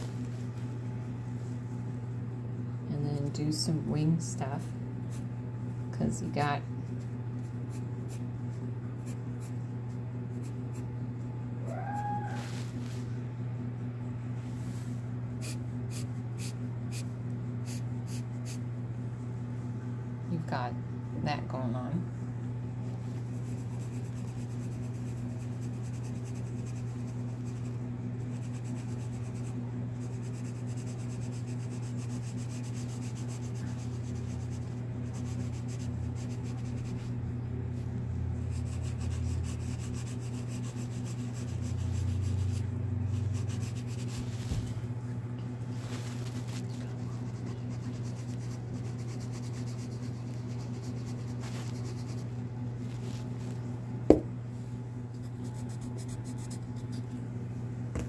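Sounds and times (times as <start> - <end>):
steady low hum: 0.0 - 58.0
pencil scratching on paper: 23.3 - 37.1, 38.5 - 44.3, 46.3 - 52.3.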